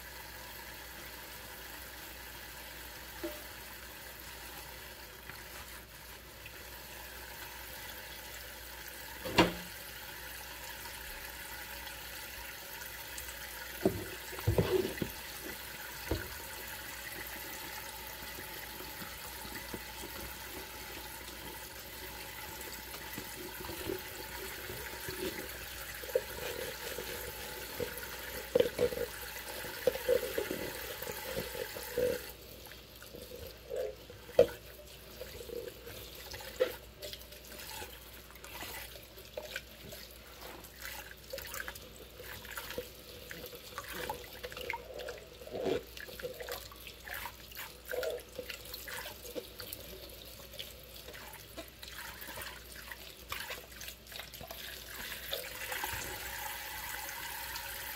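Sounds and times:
running water: 0:00.0 - 0:57.9
cup scrubbed with mesh scrubber: 0:13.8 - 0:16.2.

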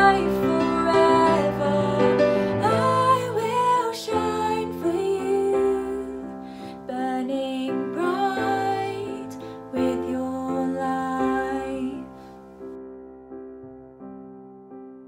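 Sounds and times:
woman singing: 0:00.0 - 0:12.2.

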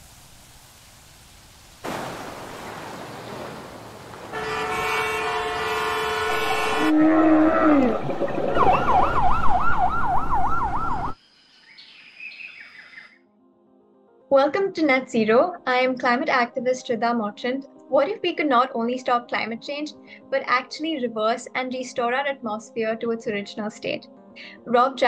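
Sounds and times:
burst of noise: 0:00.0 - 0:04.4
horn-like tones: 0:04.3 - 0:09.0
siren warbling: 0:06.4 - 0:11.2
falling tone: 0:06.8 - 0:11.2.

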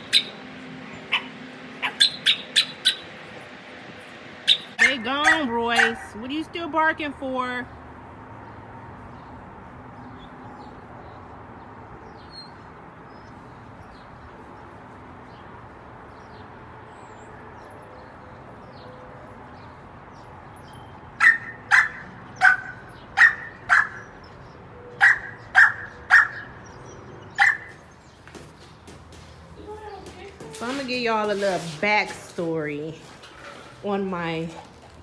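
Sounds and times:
dog barking: 0:01.1 - 0:03.1, 0:04.5 - 0:06.2, 0:21.2 - 0:24.1, 0:25.0 - 0:26.5, 0:27.3 - 0:27.8.

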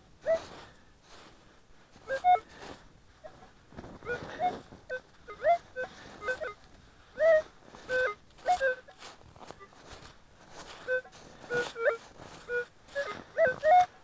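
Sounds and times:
metal detector beeps: 0:00.2 - 0:00.4, 0:02.0 - 0:02.5, 0:04.0 - 0:06.6, 0:07.2 - 0:10.0, 0:10.6 - 0:14.0
snow crunching: 0:00.2 - 0:14.0.

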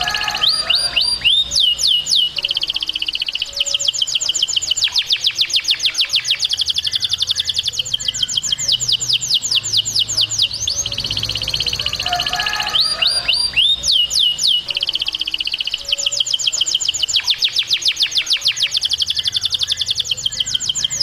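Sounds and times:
canary singing: 0:00.0 - 0:21.0.

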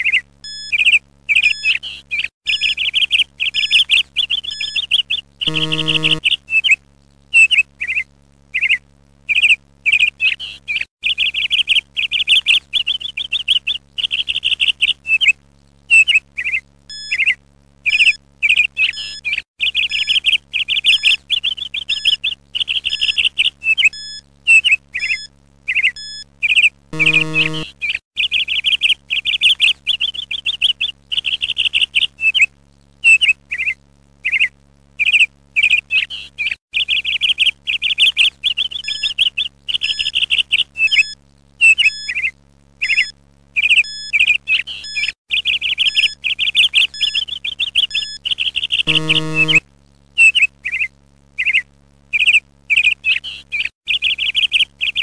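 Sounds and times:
birds chirping: 0:00.0 - 0:06.4, 0:25.0 - 0:28.5, 0:42.0 - 0:49.6
low buzzer tone: 0:05.5 - 0:06.2, 0:27.0 - 0:27.7, 0:48.9 - 0:49.6.

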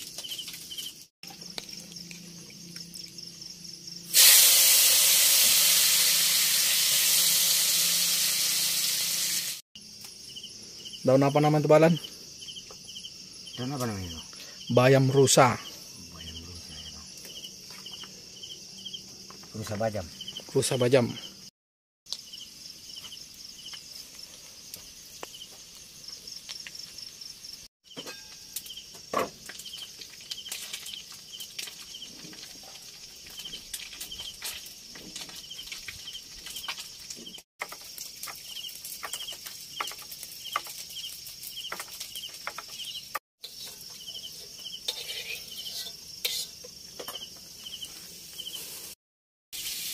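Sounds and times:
cricket chirping: 0:00.0 - 0:04.2, 0:09.8 - 0:21.5, 0:22.1 - 0:48.8
high-pitched insect whine: 0:00.0 - 0:21.5, 0:33.0 - 0:48.9.

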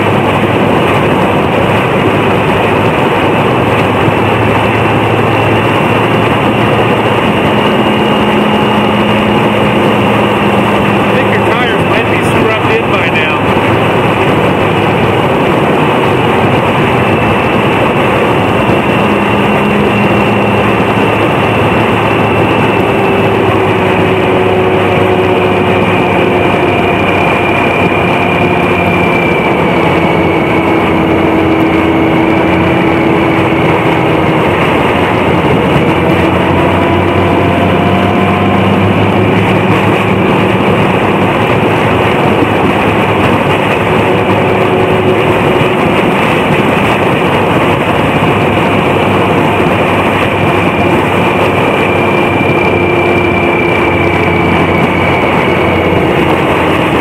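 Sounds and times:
car engine and road noise: 0:00.0 - 0:57.0
faint engine tones: 0:00.0 - 0:57.0.

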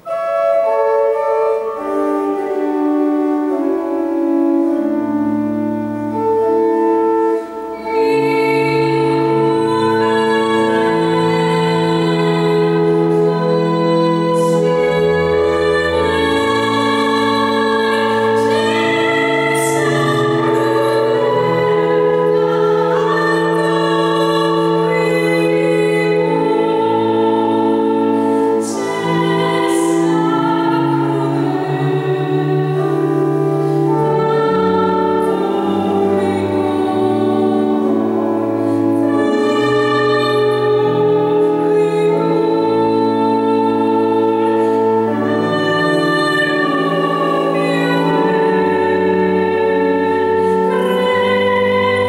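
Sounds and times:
pipe organ: 0:00.0 - 0:52.0
woman singing with vibrato: 0:00.0 - 0:52.0.

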